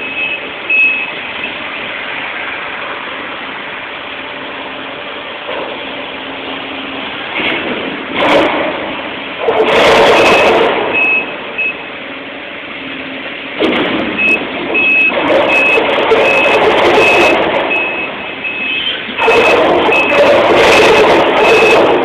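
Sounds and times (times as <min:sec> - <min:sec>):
backup alarm beeping: 0:00.0 - 0:01.7, 0:10.2 - 0:12.0, 0:14.2 - 0:22.0
heavy machinery and metal noise: 0:00.0 - 0:22.0.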